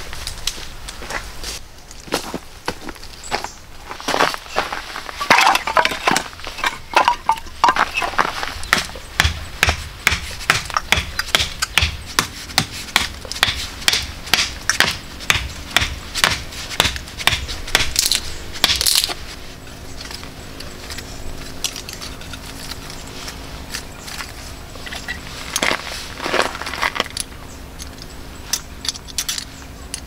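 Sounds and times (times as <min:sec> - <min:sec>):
crunching and rubbing: 0:00.0 - 0:29.5
sharp knocks and cracks: 0:08.7 - 0:19.2.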